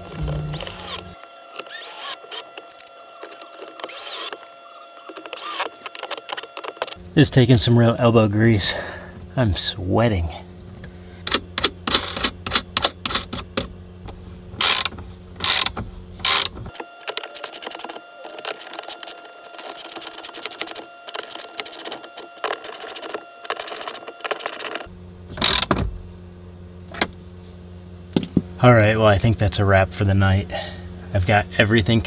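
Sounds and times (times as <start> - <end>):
low steady hum: 0.0 - 32.0
metal clicks and scrapes: 14.6 - 24.9.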